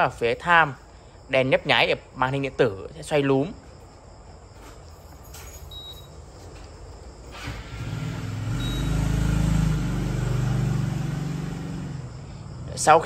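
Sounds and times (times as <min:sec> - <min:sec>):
vehicle engine rumble passing: 0:07.3 - 0:13.0
short high electronic beeps: 0:08.6 - 0:09.0.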